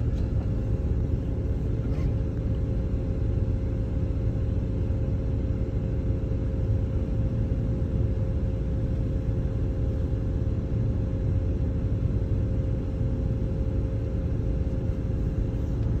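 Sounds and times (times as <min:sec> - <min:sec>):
vehicle engine idling: 0:00.0 - 0:03.7
constant hum: 0:00.0 - 0:16.0.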